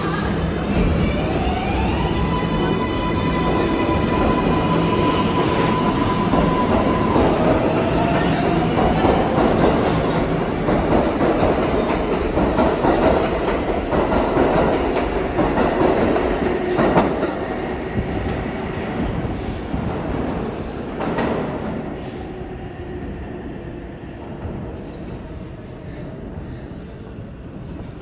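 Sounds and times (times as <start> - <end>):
subway train wheels rumbling: 0.0 - 28.0.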